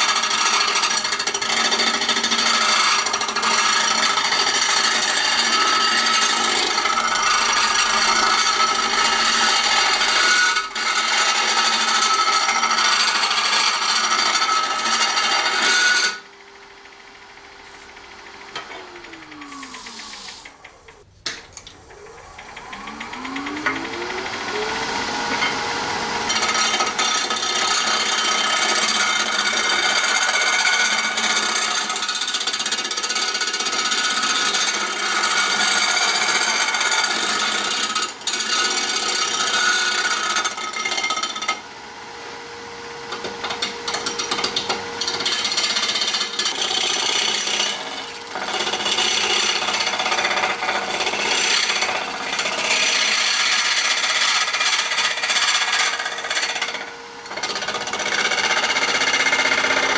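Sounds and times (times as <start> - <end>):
lathe humming: 0.0 - 16.2, 16.8 - 40.4, 45.0 - 59.9
lathe tool scraping hiss: 17.6 - 18.0, 19.2 - 21.0.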